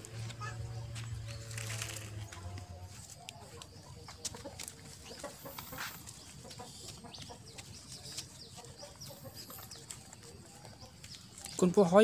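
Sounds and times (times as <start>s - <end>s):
animal clucking calls: 3.4s - 11.2s.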